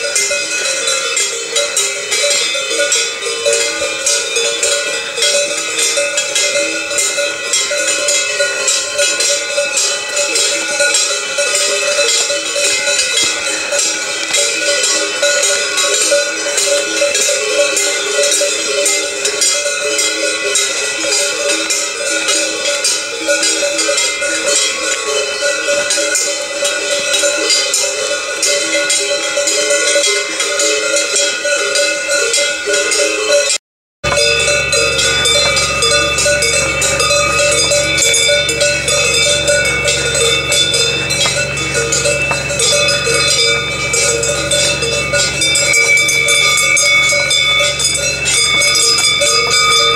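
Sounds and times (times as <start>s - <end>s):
cow bells clanging: 0.0s - 49.9s
low hum: 34.1s - 49.9s.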